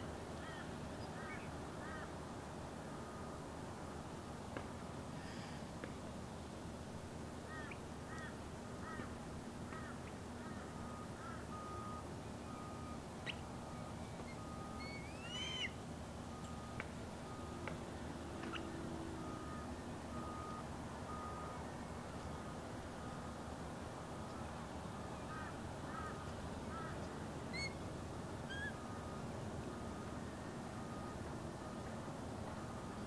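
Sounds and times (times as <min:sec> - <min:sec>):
osprey whistled chirps: 0:12.5 - 0:16.7, 0:27.5 - 0:27.8, 0:28.5 - 0:28.8.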